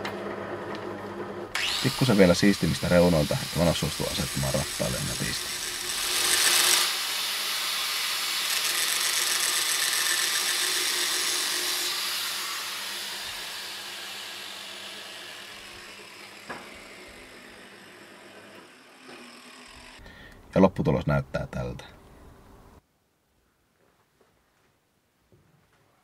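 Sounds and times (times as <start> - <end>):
angle grinder whine: 0.0 - 20.1.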